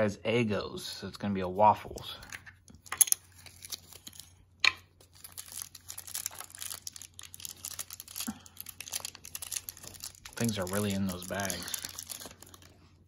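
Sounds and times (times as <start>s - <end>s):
plastic bag crinkling: 3.2s - 4.4s, 5.0s - 13.0s.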